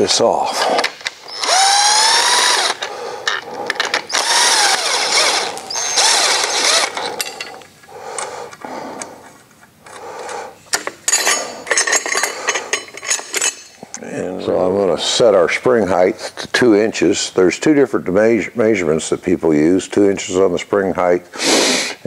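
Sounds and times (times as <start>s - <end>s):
cordless drill spinning: 1.2s - 7.2s
metal parts clicking and clinking: 2.7s - 8.3s, 10.7s - 13.8s.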